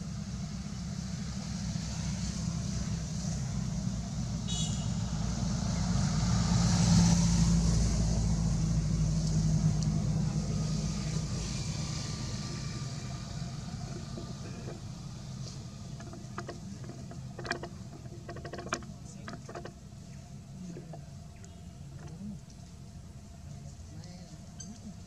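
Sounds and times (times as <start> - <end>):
vehicle engine passing: 5.0 - 21.3.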